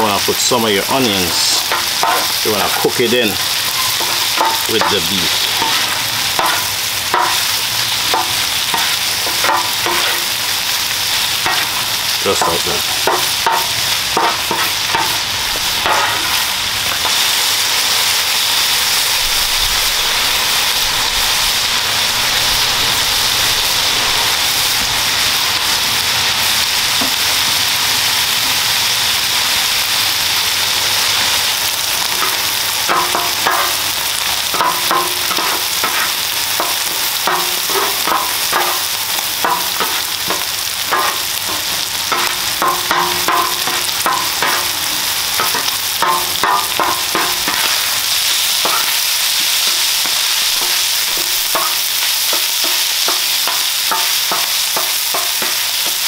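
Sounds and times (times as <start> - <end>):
meat sizzling on a griddle: 0.0 - 56.0
spatulas scraping a griddle: 11.4 - 17.1.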